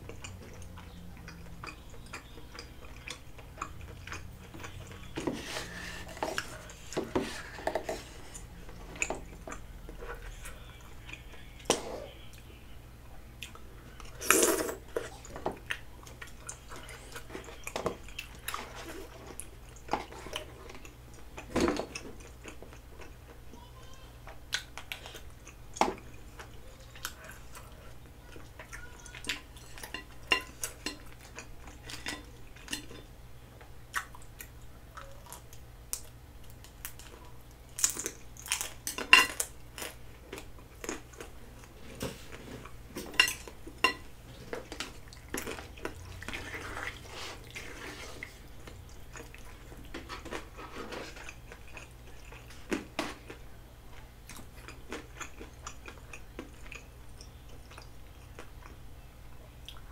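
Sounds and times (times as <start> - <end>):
chewing food: 0.0 - 12.6, 13.4 - 59.9
utensils clinking on dishes: 29.6 - 33.1, 37.8 - 40.0, 42.9 - 46.8.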